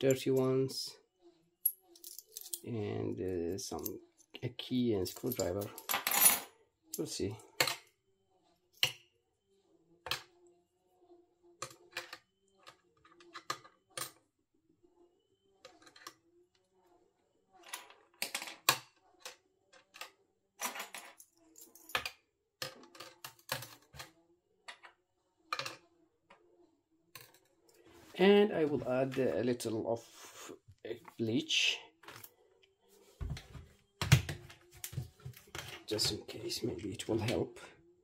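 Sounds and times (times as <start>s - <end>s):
coins and keys clinking on metal: 1.6s - 2.6s, 5.1s - 6.5s, 20.6s - 22.1s.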